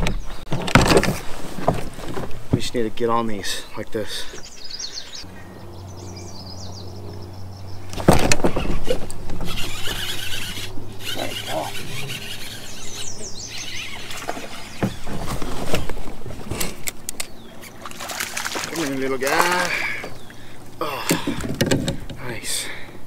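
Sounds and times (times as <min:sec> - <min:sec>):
fishing gear knocking and rustling: 0:00.0 - 0:02.6, 0:07.9 - 0:12.5, 0:21.0 - 0:22.3
small bird chirping: 0:09.5 - 0:15.1.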